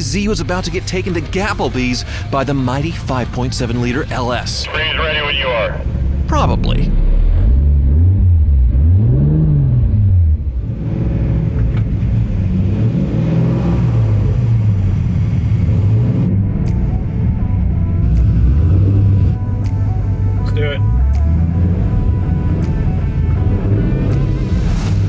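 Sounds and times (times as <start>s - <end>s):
car engines revving: 0.0s - 25.0s.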